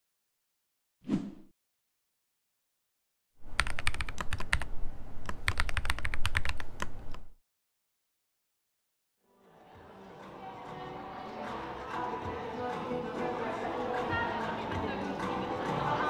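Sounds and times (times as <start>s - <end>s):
keyboard key clicks: 3.6s - 7.3s.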